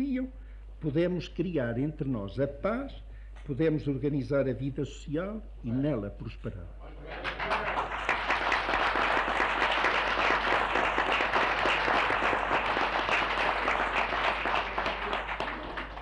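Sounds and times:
audience applauding: 0:07.1 - 0:16.0.

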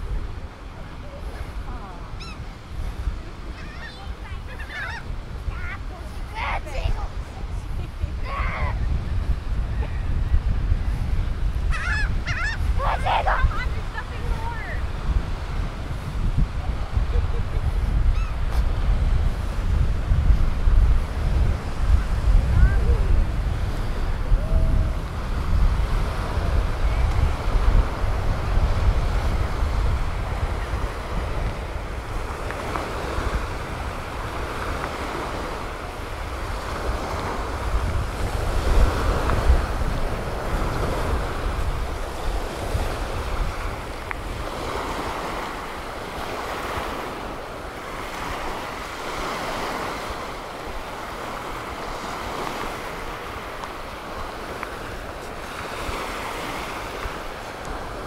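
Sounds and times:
surf washing onto sand: 0:00.0 - 0:58.0
wind buffeting microphone: 0:00.0 - 0:58.0.

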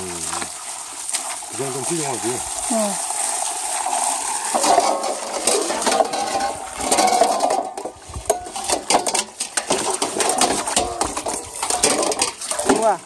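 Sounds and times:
water pouring into basin: 0:00.0 - 0:13.0
wood pieces clattering: 0:04.5 - 0:12.9.

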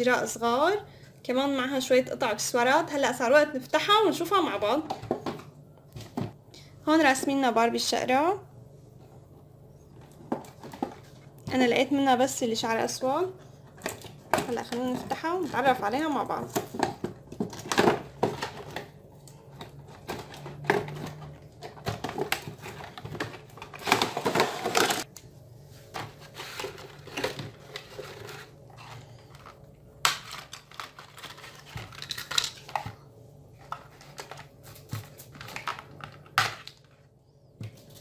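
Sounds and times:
cardboard and plastic crinkling: 0:16.4 - 0:25.1, 0:25.7 - 0:37.0.

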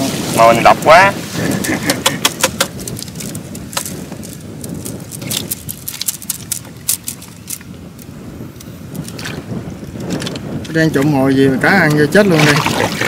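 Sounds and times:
fish flapping against plastic: 0:01.5 - 0:08.2
bamboo slats clicking: 0:01.9 - 0:03.9.

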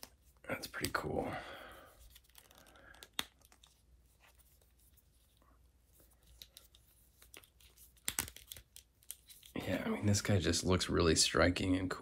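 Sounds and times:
hands handling plastic figure: 0:01.8 - 0:09.6.

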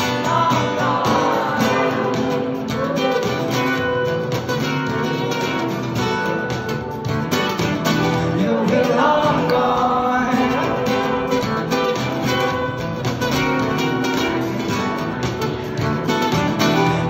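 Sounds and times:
man singing: 0:00.0 - 0:04.0, 0:08.1 - 0:12.8
acoustic guitar strumming: 0:00.0 - 0:17.0.

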